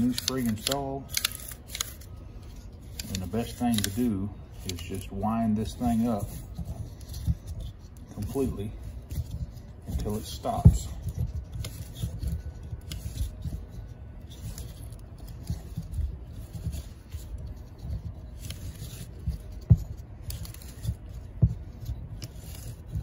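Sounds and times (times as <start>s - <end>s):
recoil starter pulley turning: 0.0s - 5.1s.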